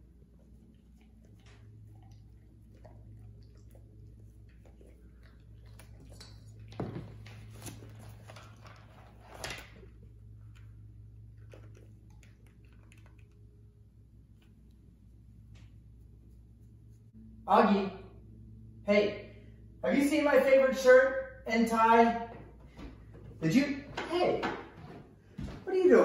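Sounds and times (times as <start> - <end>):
low hum: 0.0 - 24.0
scuffing knocks: 22.7 - 25.7.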